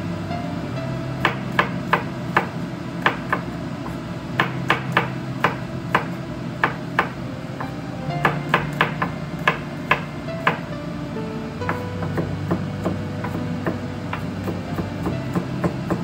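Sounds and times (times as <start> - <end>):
steady low hum: 0.0 - 16.0
knife chopping on wooden board: 4.4 - 7.2.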